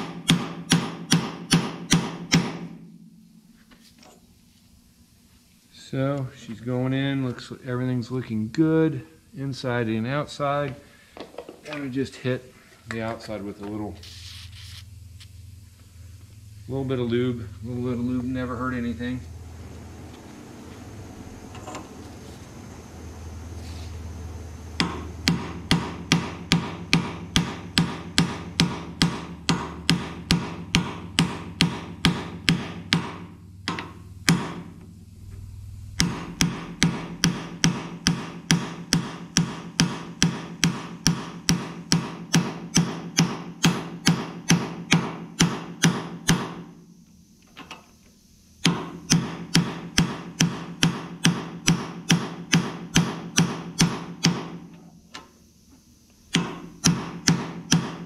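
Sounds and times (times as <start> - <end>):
hammer striking metal: 0.0 - 3.6, 24.8 - 34.8, 35.9 - 46.6, 48.6 - 54.6, 56.3 - 58.0.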